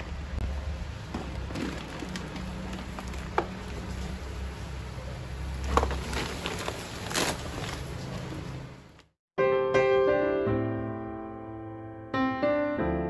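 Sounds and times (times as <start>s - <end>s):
plastic bags rustling and crinkling: 1.2s - 4.4s, 5.5s - 8.7s.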